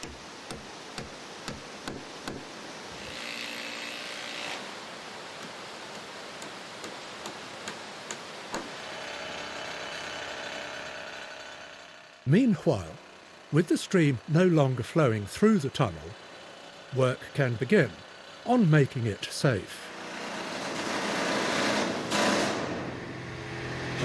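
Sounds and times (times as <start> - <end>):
hammer driving nails into wood: 0.0 - 2.5, 5.4 - 8.8
steady engine hum: 4.7 - 24.0.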